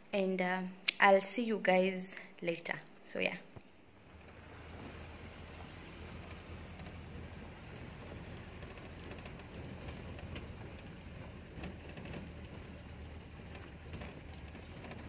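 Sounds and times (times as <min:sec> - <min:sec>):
road and wind noise: 0:03.9 - 0:15.0
car engine hum: 0:04.0 - 0:15.0.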